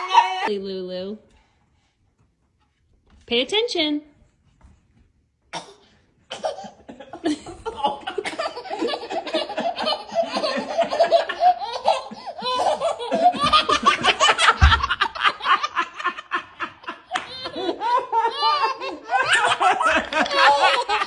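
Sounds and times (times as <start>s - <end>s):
dull thump: 14.5s - 15.0s.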